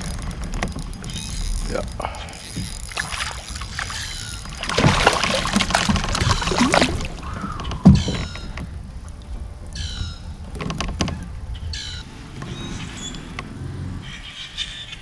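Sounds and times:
handling noise on boat: 0.0s - 15.0s
fish splashing at surface: 3.0s - 7.3s.

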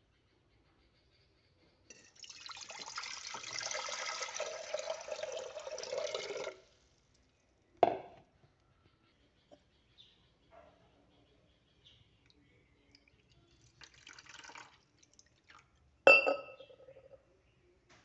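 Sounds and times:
water pouring into metal pot: 1.9s - 6.9s, 13.0s - 15.7s.

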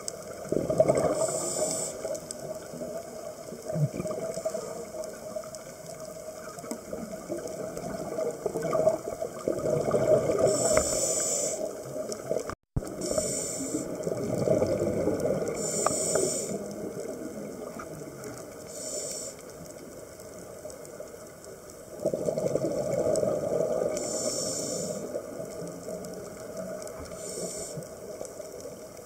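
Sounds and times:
bubbling regulator exhalations: 0.5s - 1.9s, 7.6s - 11.5s, 12.8s - 16.6s.

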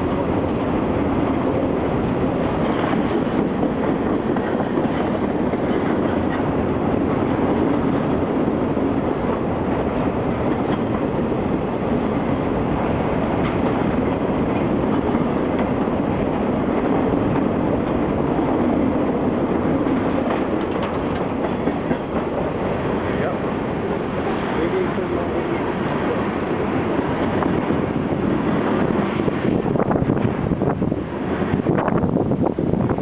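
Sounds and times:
freight train wheels rumbling: 0.0s - 33.0s.

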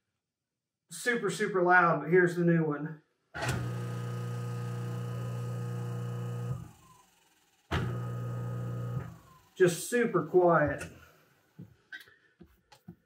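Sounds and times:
garbage disposal humming: 3.4s - 6.8s, 7.7s - 9.7s.

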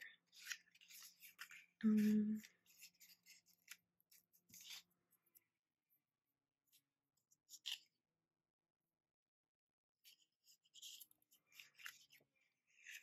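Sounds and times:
paper and tape rustling: 0.0s - 5.5s, 6.7s - 8.0s, 10.1s - 13.0s
person humming: 1.8s - 2.4s.

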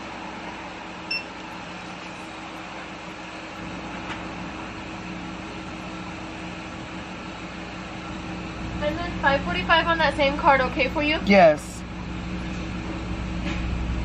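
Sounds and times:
car cabin engine hum: 0.0s - 14.0s
short high beep: 1.1s - 1.3s.

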